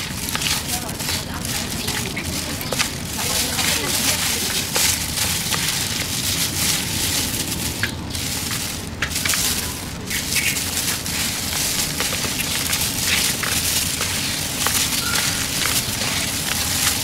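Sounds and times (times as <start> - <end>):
plastic glove crinkling food: 0.0 - 17.0.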